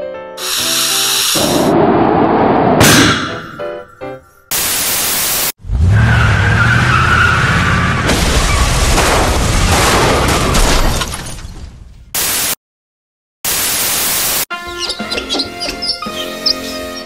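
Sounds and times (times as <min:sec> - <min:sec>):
loud static hiss: 0:04.5 - 0:05.5, 0:13.5 - 0:14.4.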